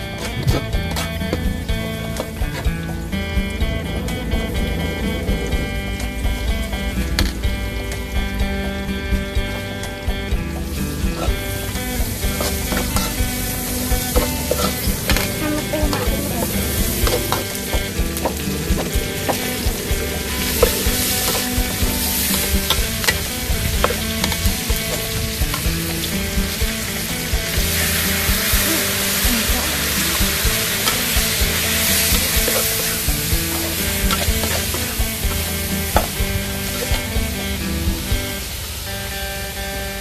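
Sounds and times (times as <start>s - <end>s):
food sizzling in hot oil: 1.0s - 40.0s
metal spatula scraping wok: 10.8s - 37.6s.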